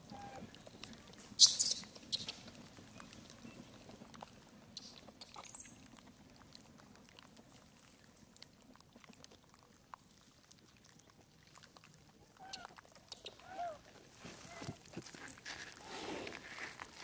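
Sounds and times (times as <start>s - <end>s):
monkey squeaky calls: 1.4s - 2.4s.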